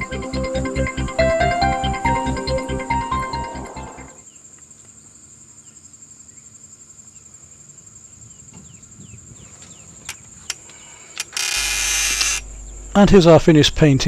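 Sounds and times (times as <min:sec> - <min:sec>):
insects trilling: 0:04.2 - 0:14.0
faint clicks and chirps: 0:09.6 - 0:13.0
loud hiss: 0:10.8 - 0:14.0.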